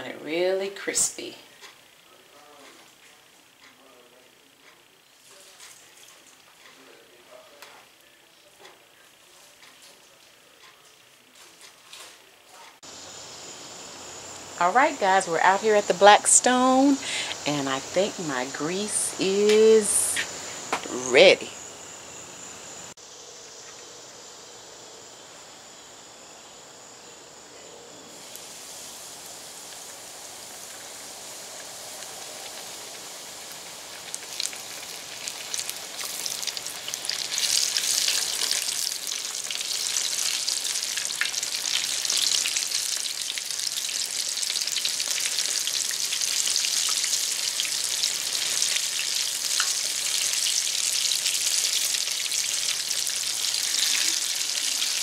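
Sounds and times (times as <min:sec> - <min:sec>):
fish deep-frying in oil: 0:28.1 - 0:55.0.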